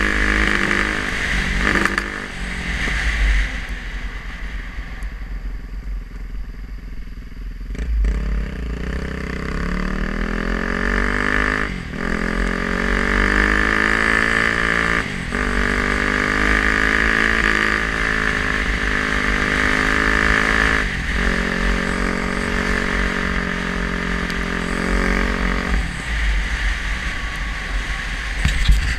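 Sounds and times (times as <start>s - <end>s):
dirt bike engine running: 0.0s - 3.6s, 5.4s - 28.9s
wind rumble on microphone: 20.2s - 28.9s.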